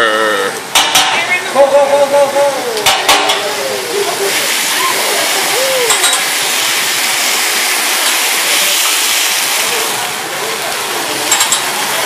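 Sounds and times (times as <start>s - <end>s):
griddle sizzling: 0.0s - 12.0s.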